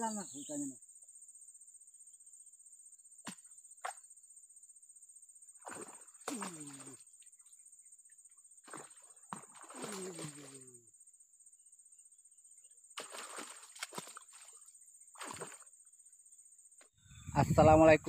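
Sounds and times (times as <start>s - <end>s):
fish splashing in water: 5.6s - 7.0s, 8.6s - 10.6s, 13.0s - 15.7s.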